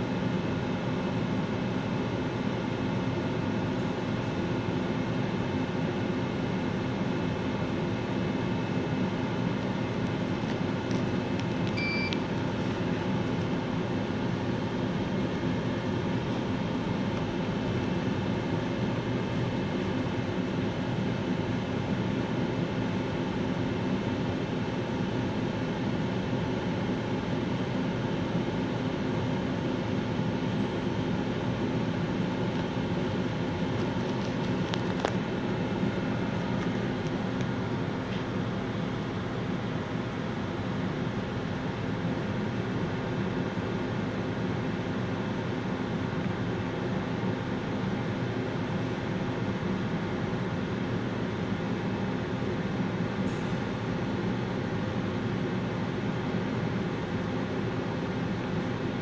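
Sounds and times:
steady fan-like hum: 0.0s - 59.0s
short high beep: 11.8s - 12.2s.

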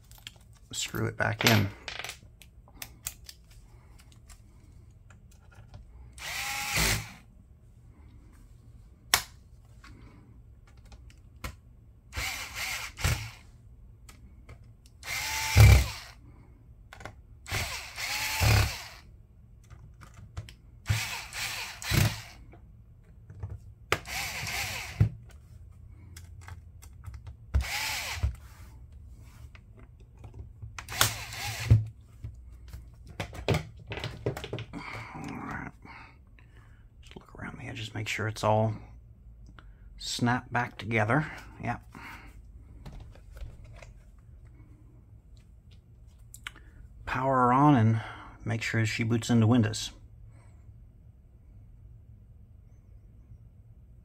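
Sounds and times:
electric screwdriver whine: 6.2s - 7.2s, 12.2s - 13.4s, 15.0s - 16.2s, 17.5s - 19.0s, 20.9s - 22.4s, 24.0s - 25.1s, 27.6s - 28.4s, 30.9s - 31.8s.

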